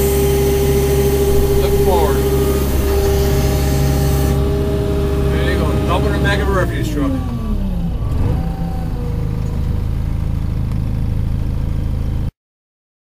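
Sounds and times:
street sweeper engine idling: 0.0 - 12.3.

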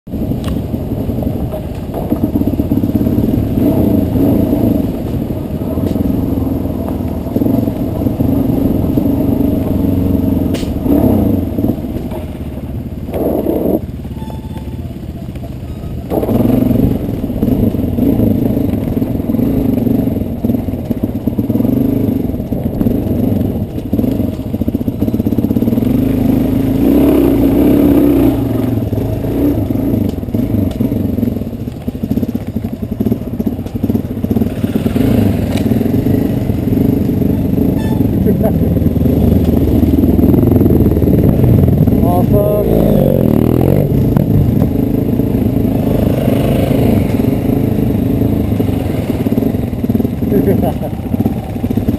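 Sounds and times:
motorcycle engine running: 0.1 - 51.9.

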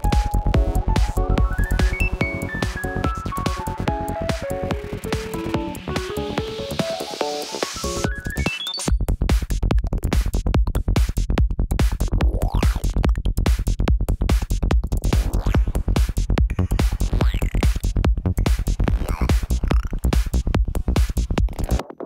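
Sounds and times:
psytrance dance music: 0.0 - 22.0.

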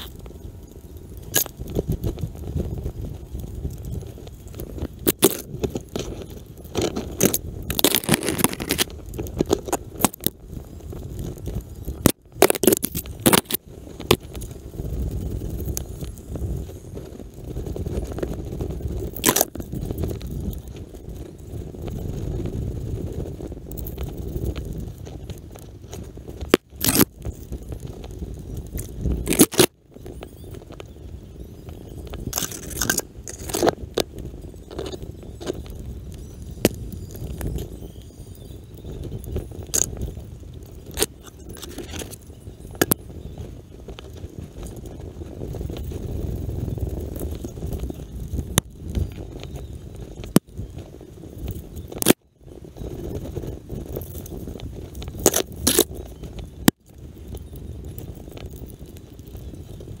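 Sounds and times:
branches crackling and scraping: 0.0 - 60.0
twigs clicking and rustling: 1.1 - 2.9, 3.7 - 16.4, 17.9 - 21.2, 23.7 - 29.7, 32.0 - 37.7, 39.2 - 49.6, 53.8 - 59.5
sharp branch cracks: 19.2 - 19.6.

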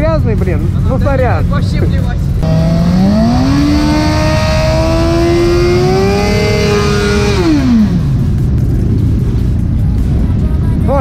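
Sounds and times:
motorcycle engine revving: 2.2 - 9.6.

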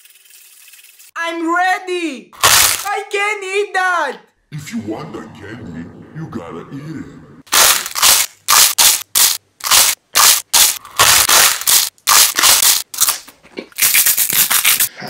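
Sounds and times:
chip crunching being chewed: 7.5 - 14.9.

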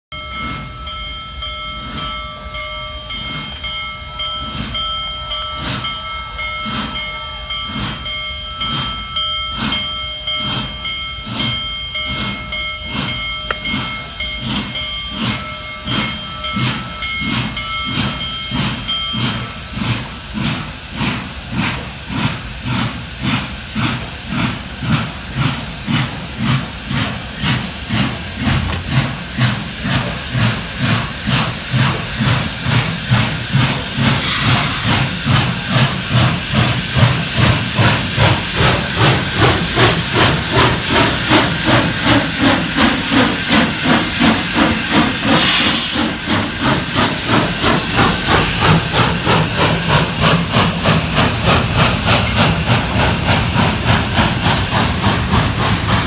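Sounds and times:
steam locomotive exhaust chuffs: 0.1 - 56.0
steam hissing: 0.3 - 56.0.

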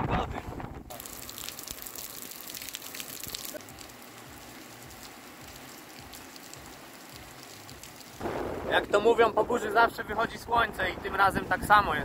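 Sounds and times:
rain on paving and puddles: 0.9 - 8.7.

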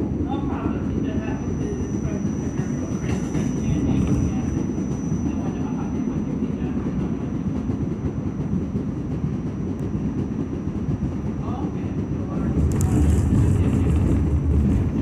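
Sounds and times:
wheels rumbling on rail: 0.0 - 15.0
thin high whine: 1.2 - 6.8.

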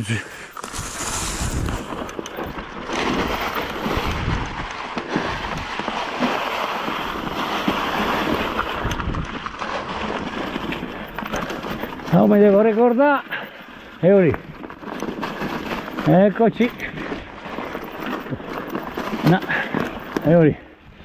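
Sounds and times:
tyres on dry leaves and dirt: 0.0 - 21.0
wind rushing over microphone: 0.7 - 2.6, 3.2 - 5.9.

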